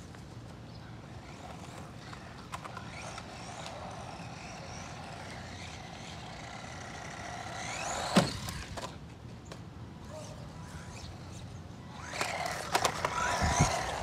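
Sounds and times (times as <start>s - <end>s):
toy truck motor whining: 1.2s - 8.8s, 10.5s - 14.0s.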